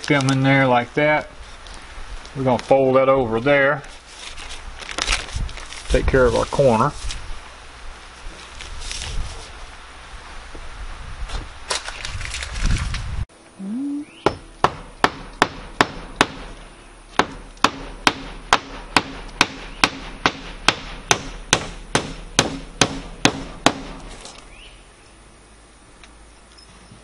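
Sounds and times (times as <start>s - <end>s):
hammer driving nails: 17.2s - 24.1s.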